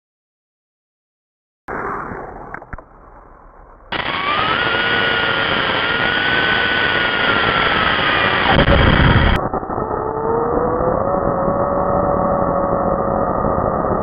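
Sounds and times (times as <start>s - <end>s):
electric motor whining: 3.9s - 14.0s
road and wind rush: 3.9s - 14.0s.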